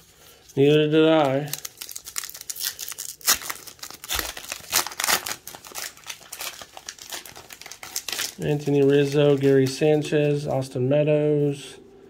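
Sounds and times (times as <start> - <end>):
wrapper tearing and crinkling: 0.6 - 10.0.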